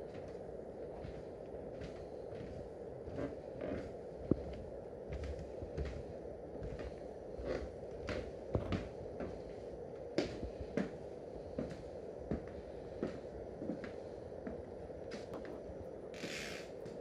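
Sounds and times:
low background noise: 0.0s - 17.0s
footsteps on wooden floor: 1.0s - 9.6s, 11.6s - 15.6s, 16.2s - 17.0s.

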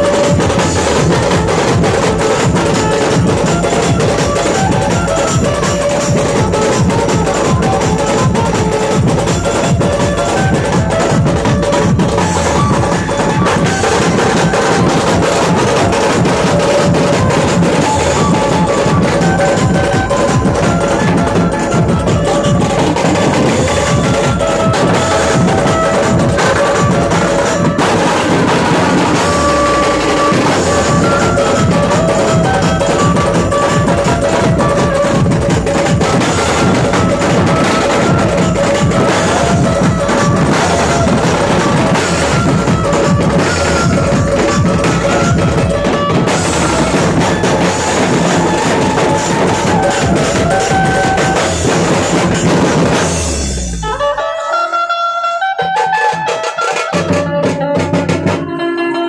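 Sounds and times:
large drums beaten fast: 0.0s - 54.1s, 55.6s - 58.6s
melody of short held notes: 53.1s - 59.0s.

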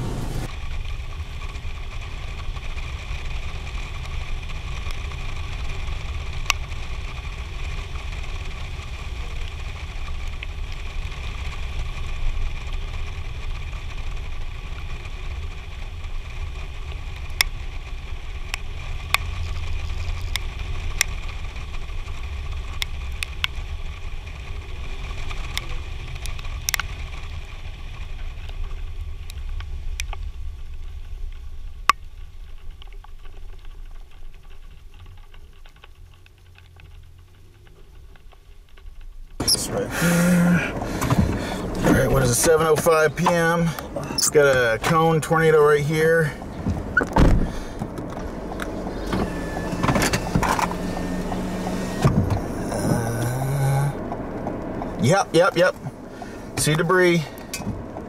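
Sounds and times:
raindrops ticking on camera: 0.2s - 58.0s.

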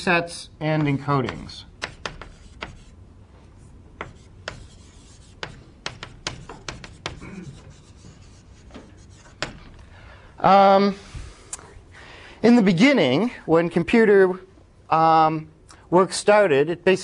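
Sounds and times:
chalk tapping on a board: 0.8s - 3.0s, 4.0s - 9.8s.

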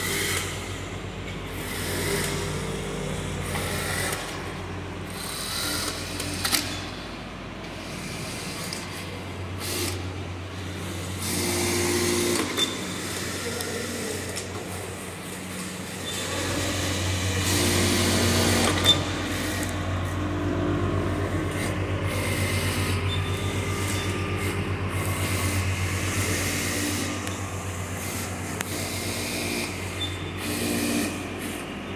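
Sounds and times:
sewing machines stitching: 15.4s - 19.9s.

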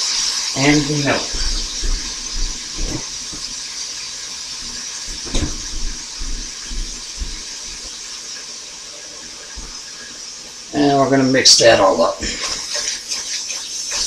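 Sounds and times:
food sizzling in a skillet: 0.0s - 14.0s
light knocks: 4.6s - 7.9s.

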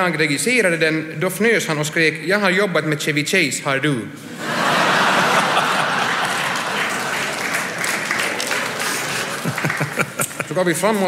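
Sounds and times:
audience applauding: 4.4s - 10.6s.

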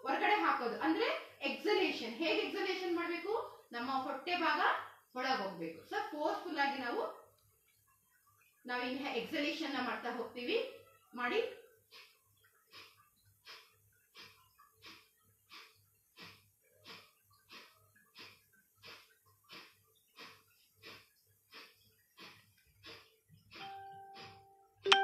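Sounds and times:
steady chime tone: 23.6s - 25.0s.

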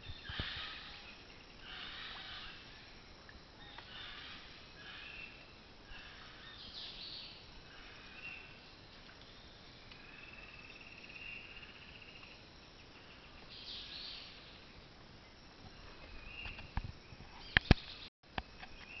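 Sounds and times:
bird calls: 0.0s - 2.7s
pulsing insect trill: 0.0s - 19.0s.

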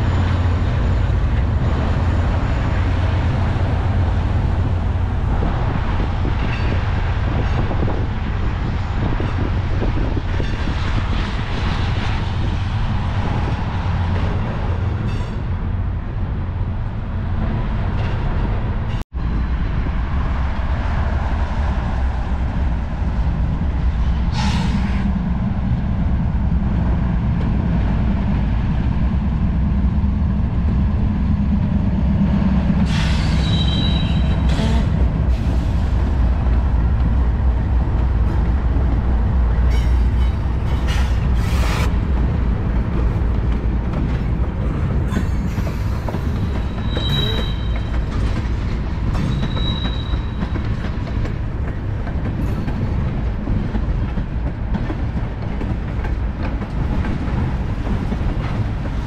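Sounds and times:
diesel locomotive engine drone: 0.0s - 59.0s
train wheels rumbling on rail: 0.0s - 59.0s
wheel squeals: 32.9s - 34.9s, 45.1s - 48.0s, 49.1s - 50.8s.

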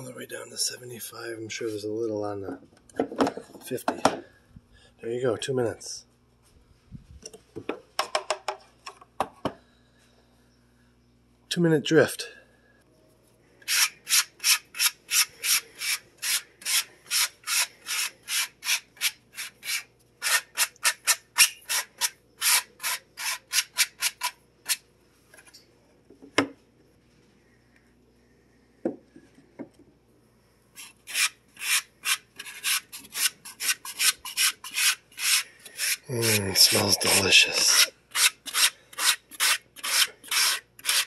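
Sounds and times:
brush scraping metal mesh: 30.8s - 41.0s.

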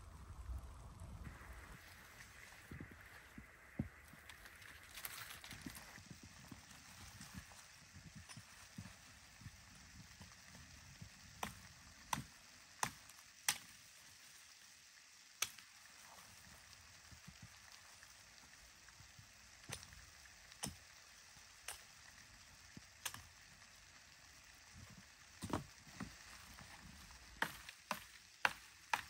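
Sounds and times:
hatchet chopping branches: 11.4s - 13.7s, 27.4s - 29.0s.

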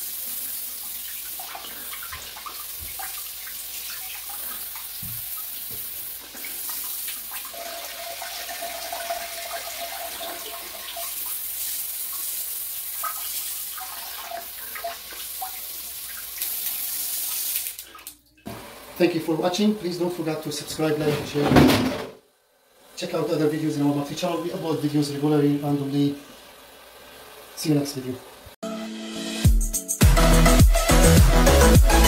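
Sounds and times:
water spraying into toilet bowl: 0.0s - 19.0s.

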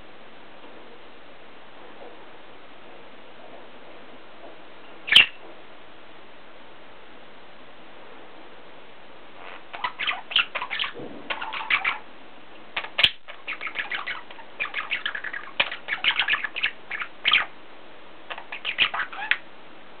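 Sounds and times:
budgerigar chattering: 5.1s - 5.4s, 9.4s - 12.0s, 12.8s - 17.5s, 18.3s - 19.4s.

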